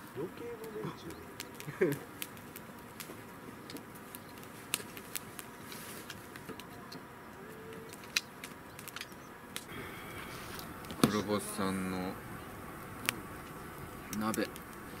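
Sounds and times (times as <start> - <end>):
faint hum: 5.4 - 15.0.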